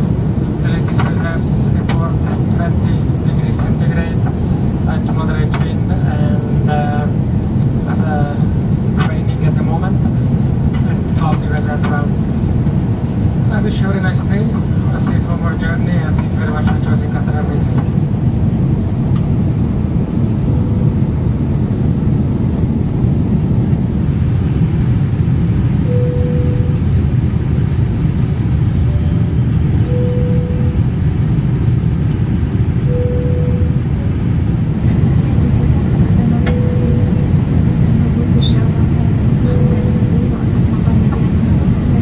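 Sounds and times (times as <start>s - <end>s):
airliner cabin rumble: 0.0s - 42.0s
short steady tone: 25.9s - 26.8s, 29.8s - 30.9s, 32.9s - 33.8s, 36.5s - 37.3s.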